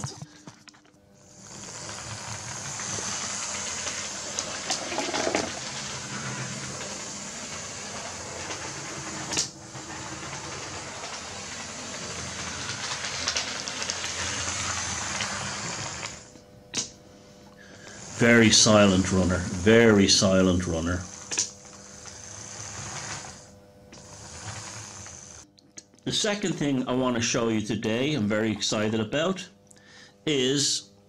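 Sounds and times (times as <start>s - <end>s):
model train motor whirring: 1.2s - 16.3s, 17.7s - 25.4s.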